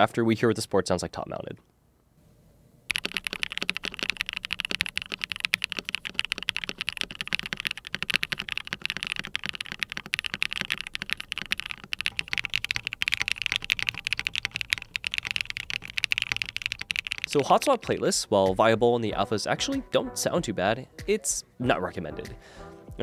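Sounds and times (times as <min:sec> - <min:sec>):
fast mechanical keyboard typing: 0:02.9 - 0:17.9.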